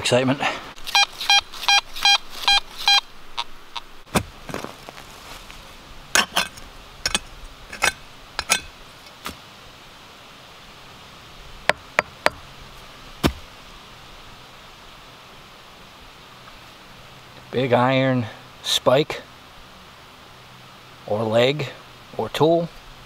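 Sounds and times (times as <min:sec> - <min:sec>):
metal detector beeps: 0:00.9 - 0:03.0
digging tool chopping soil: 0:04.1 - 0:04.8, 0:13.2 - 0:13.4.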